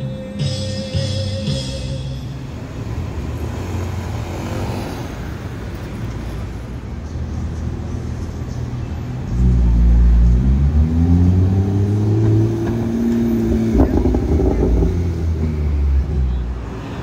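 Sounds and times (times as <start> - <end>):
car engine accelerating hard: 9.3 - 17.0.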